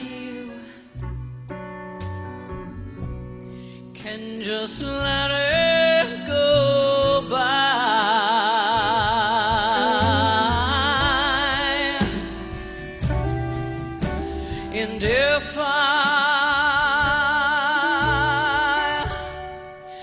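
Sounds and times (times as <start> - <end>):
woman singing with vibrato: 0.0 - 1.0, 4.0 - 13.1, 14.3 - 20.0
live band with bass: 0.0 - 20.0.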